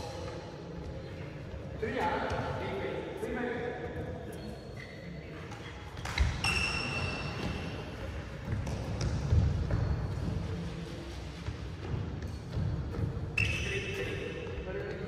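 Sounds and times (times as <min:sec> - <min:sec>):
sneaker squeak on court floor: 0:04.3 - 0:07.8, 0:13.3 - 0:14.5.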